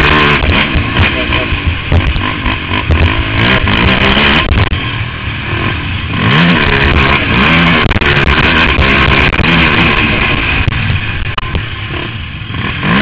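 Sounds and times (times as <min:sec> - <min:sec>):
quad engine revving: 0:00.0 - 0:13.0
sharp clicks and knocks: 0:00.4 - 0:04.8.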